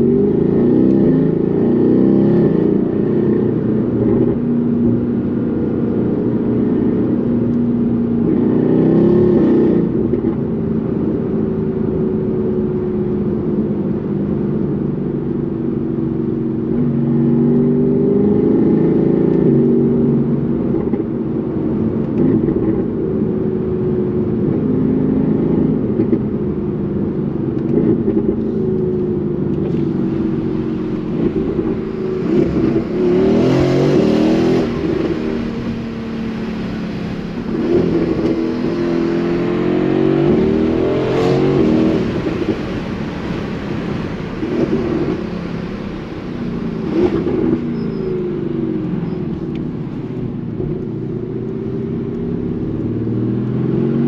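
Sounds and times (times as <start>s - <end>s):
car engine accelerating: 27.4s - 54.0s.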